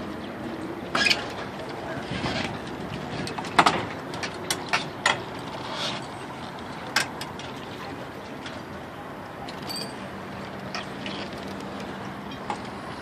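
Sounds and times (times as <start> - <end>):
sailboat rigging clinks: 9.5 - 10.1.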